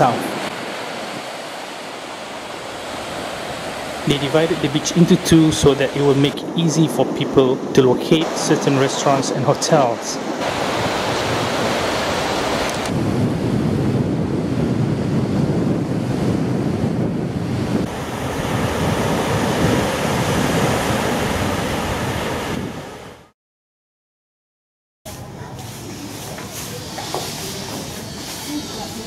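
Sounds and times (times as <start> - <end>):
wind buffeting microphone: 0.0 - 23.2
sea surf washing onto beach: 0.0 - 23.3.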